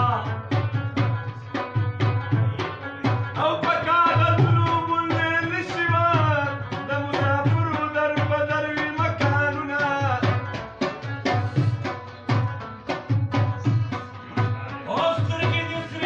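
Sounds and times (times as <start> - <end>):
steady drum beat: 0.0 - 16.0.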